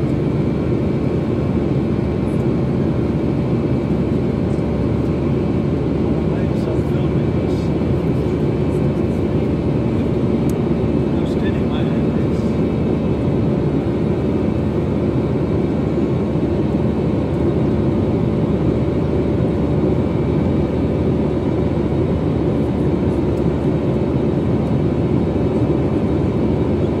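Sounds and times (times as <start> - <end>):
jet engine roar in cabin: 0.0 - 27.0.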